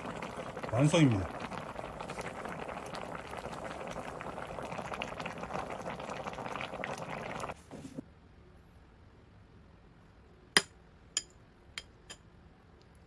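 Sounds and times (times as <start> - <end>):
stew boiling and bubbling: 0.0 - 8.1.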